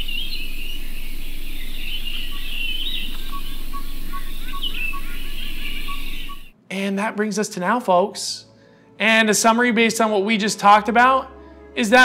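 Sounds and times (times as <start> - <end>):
bird repeating a short note: 0.0 - 6.5
birds chirping and trilling: 0.0 - 6.5
steady low background noise: 0.0 - 12.0.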